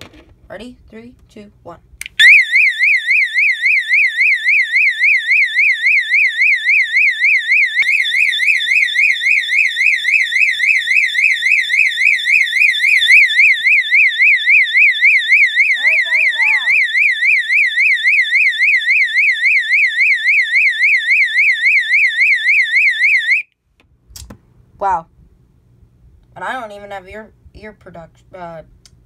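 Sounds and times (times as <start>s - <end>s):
fire alarm horn warbling: 2.2s - 23.5s.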